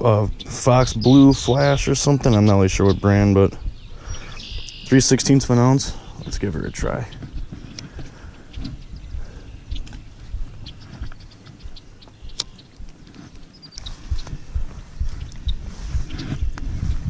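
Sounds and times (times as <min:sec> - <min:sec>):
thumps on microphone: 0:07.1 - 0:17.0.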